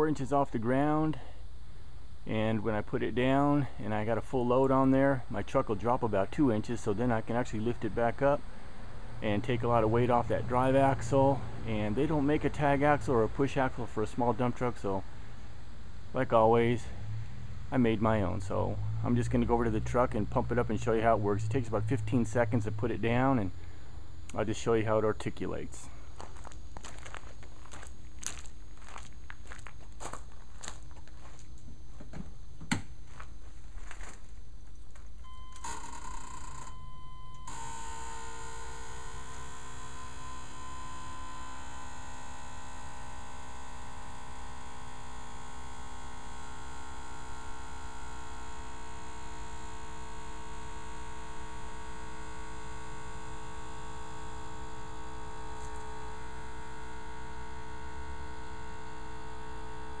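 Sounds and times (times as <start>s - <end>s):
air compressor humming: 0.0s - 60.0s
footsteps on gravel: 26.0s - 31.7s, 33.0s - 35.1s.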